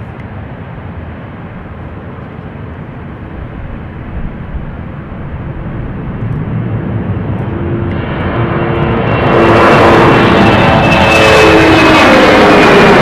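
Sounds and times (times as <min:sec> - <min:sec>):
jet engines rumbling: 0:00.0 - 0:13.0
whining engine tone: 0:05.1 - 0:13.0.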